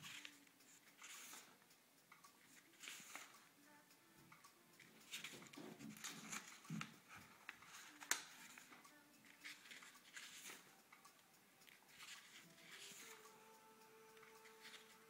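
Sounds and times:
faint paper rustling: 0.0 - 1.6, 2.5 - 3.4, 5.1 - 10.7, 11.9 - 13.2.

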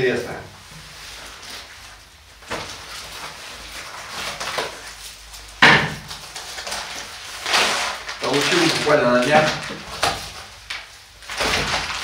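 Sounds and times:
rustling and scraping of objects: 0.0 - 12.0
sharp knock: 5.6 - 6.0.

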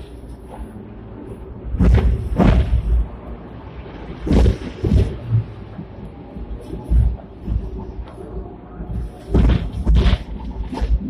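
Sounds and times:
tram rumbling: 0.0 - 11.0
heavy low thuds: 1.6 - 3.2, 4.2 - 8.0, 8.9 - 11.0.

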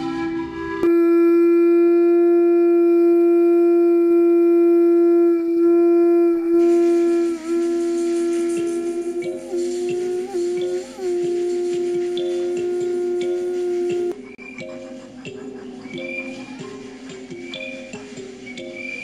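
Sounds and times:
long wind instrument note: 0.0 - 14.2.

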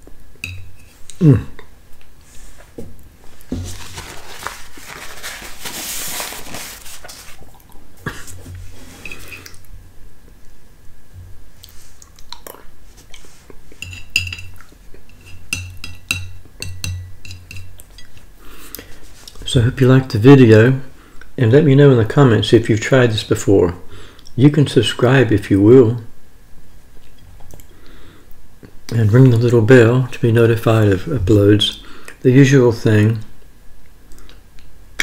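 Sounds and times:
rustling: 2.2 - 7.5
spoon scraping ceramic plate: 8.9 - 9.5.

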